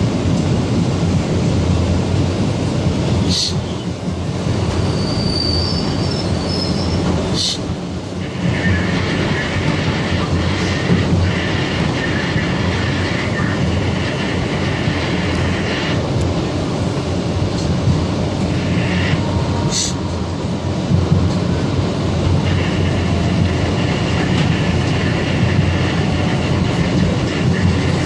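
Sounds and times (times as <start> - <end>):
train wheels rumbling on rails: 0.0 - 28.0
high wheel squeal: 4.7 - 7.6.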